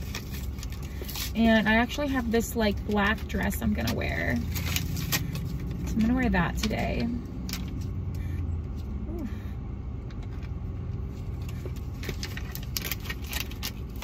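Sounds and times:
low rumble inside car cabin: 0.0 - 14.0.

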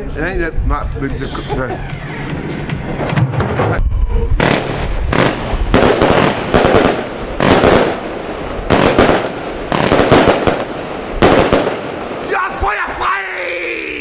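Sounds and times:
fireworks bangs: 3.0 - 13.0.

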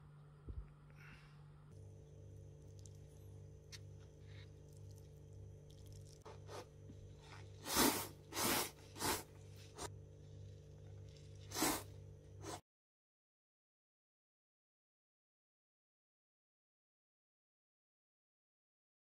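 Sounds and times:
person slurping noodles: 6.1 - 9.9, 11.2 - 12.6.

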